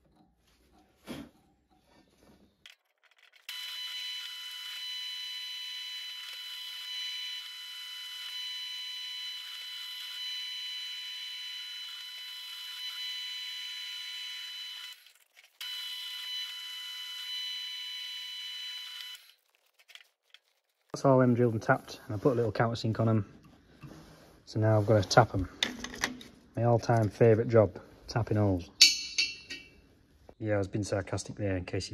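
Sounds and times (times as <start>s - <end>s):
drill boring into steel: 3.5s - 15.0s.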